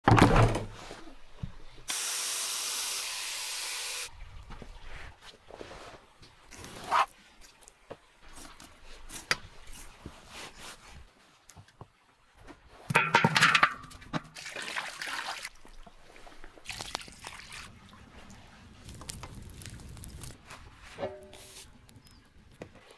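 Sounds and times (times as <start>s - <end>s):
water pouring onto meat: 16.6s - 20.4s.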